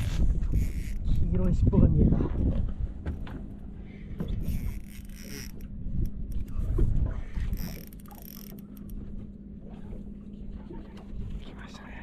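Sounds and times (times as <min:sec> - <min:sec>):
reel clicks: 0:00.0 - 0:01.6, 0:04.2 - 0:09.2
fishing reel drag screaming: 0:00.5 - 0:01.0, 0:04.4 - 0:05.7, 0:07.5 - 0:08.9.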